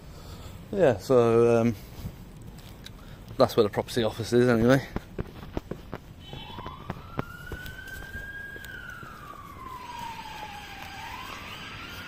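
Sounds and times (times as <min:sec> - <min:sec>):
siren wailing: 0:06.2 - 0:12.0.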